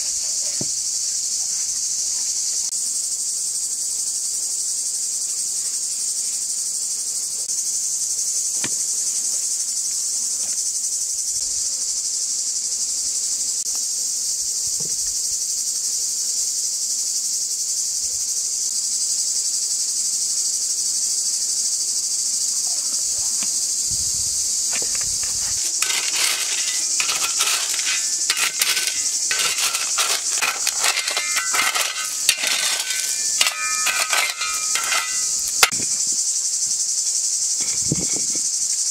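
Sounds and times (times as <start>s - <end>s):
insects chirring: 0.0s - 38.9s
metal tool digging into gravel: 24.7s - 35.8s
stones knocking together: 24.8s - 35.8s.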